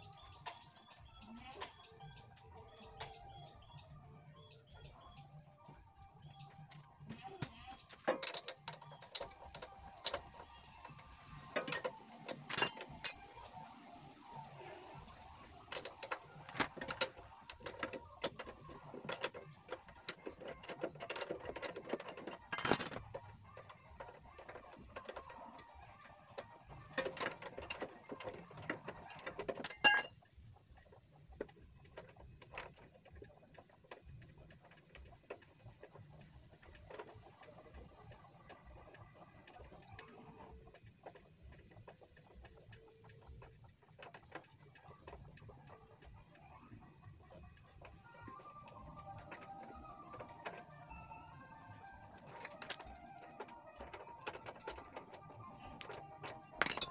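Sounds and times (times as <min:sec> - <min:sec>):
spanner clanking: 0:11.6 - 0:13.3, 0:27.2 - 0:30.2, 0:51.6 - 0:56.9
metal spanner clicking: 0:12.4 - 0:13.3, 0:29.7 - 0:30.1, 0:55.7 - 0:56.9.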